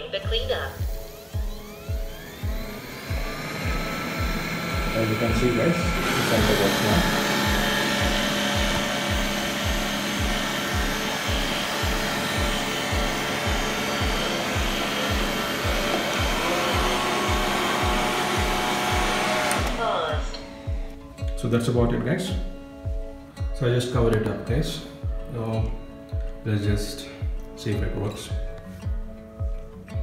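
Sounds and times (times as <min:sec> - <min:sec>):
background music with steady beat: 0:00.0 - 0:30.0
robot vacuum suction fan: 0:00.7 - 0:20.7.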